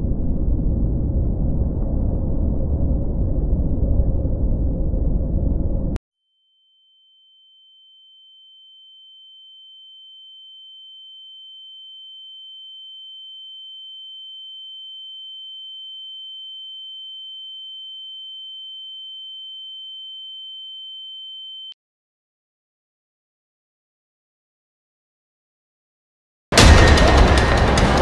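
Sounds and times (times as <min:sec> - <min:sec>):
high-pitched electronic ringing tone: 0:06.4 - 0:21.8.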